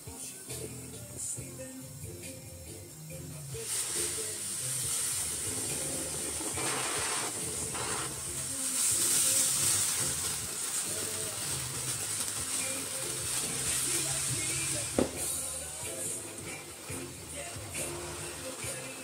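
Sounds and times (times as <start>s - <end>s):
firework fountain hissing: 0.0s - 19.0s.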